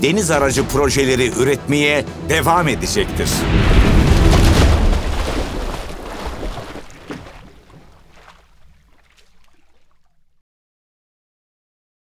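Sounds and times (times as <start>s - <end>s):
sea waves: 2.2s - 10.4s
water splashing: 2.5s - 10.4s.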